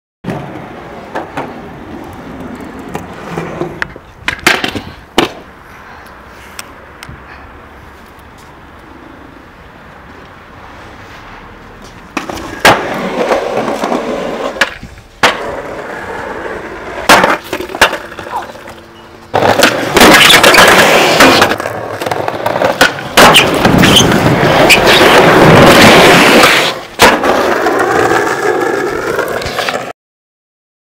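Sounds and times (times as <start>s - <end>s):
skateboard rolling on concrete: 0.2s - 29.9s
skateboard clacks: 0.3s - 5.5s, 11.8s - 29.9s.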